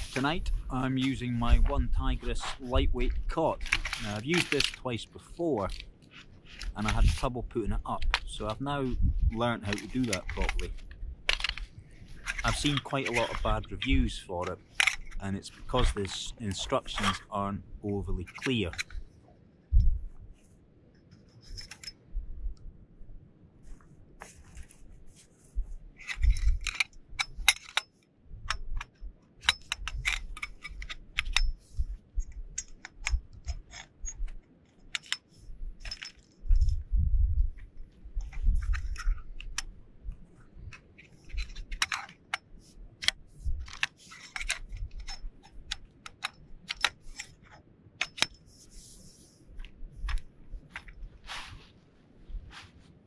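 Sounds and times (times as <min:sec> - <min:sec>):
low rumble on microphone: 0:06.8 - 0:09.4, 0:36.5 - 0:40.8
metal poles clicking together: 0:09.7 - 0:13.7, 0:26.0 - 0:36.6, 0:40.7 - 0:49.2.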